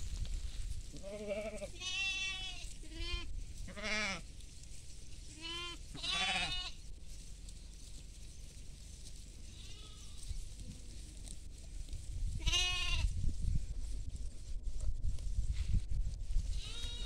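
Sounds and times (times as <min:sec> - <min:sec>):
goats and sheep bleating: 0:00.9 - 0:04.3, 0:05.3 - 0:06.8, 0:09.3 - 0:10.4, 0:12.4 - 0:13.1, 0:16.5 - 0:17.0.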